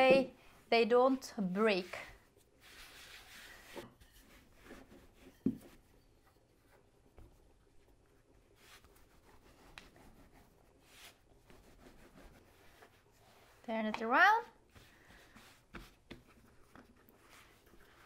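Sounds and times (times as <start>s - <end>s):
rolling pin rubbing on dough: 8.5s - 13.7s.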